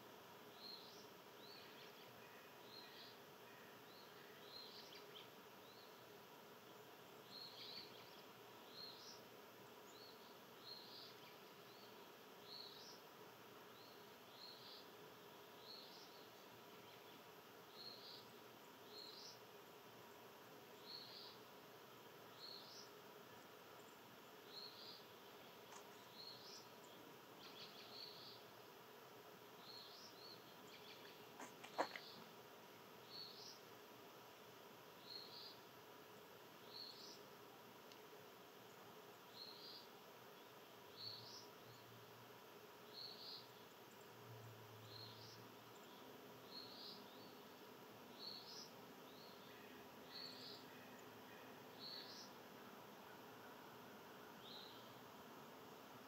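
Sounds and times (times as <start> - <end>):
outdoor background hum: 0.0 - 56.0
small animal chirping: 31.4 - 32.2.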